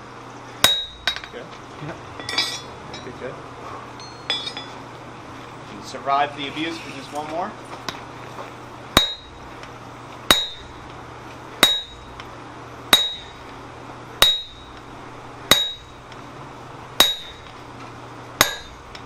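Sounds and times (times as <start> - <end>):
sledgehammer clanging on steel tool: 2.2 - 3.2, 4.0 - 4.8, 11.6 - 12.1, 12.9 - 13.4, 17.0 - 17.5, 18.4 - 18.8.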